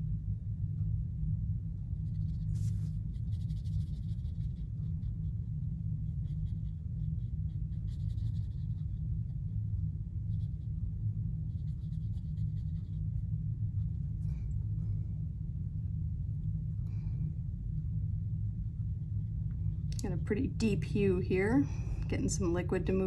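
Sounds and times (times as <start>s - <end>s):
steady low hum: 0.0s - 23.0s
brush strokes on paper: 2.1s - 5.4s.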